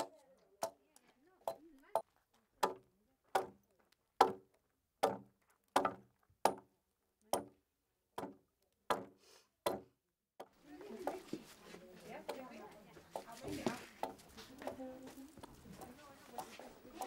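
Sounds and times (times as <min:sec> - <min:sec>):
blade chopping wooden pole: 0:02.6 - 0:03.6, 0:04.2 - 0:06.7, 0:07.3 - 0:07.5, 0:08.2 - 0:10.5, 0:13.2 - 0:14.8.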